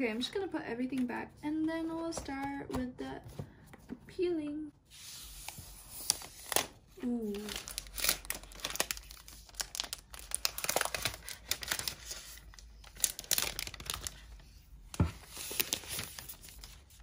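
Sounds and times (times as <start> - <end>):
plastic film crackling: 6.0 - 17.0.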